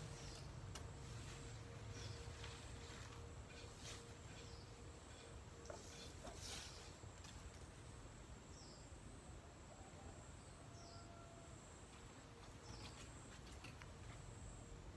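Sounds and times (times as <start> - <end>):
leaves rustling: 0.0 - 7.9.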